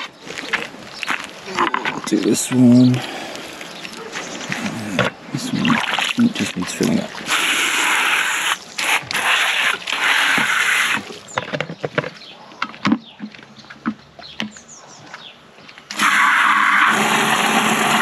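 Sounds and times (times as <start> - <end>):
hose water gushing into container: 5.4 - 11.2, 15.9 - 18.0.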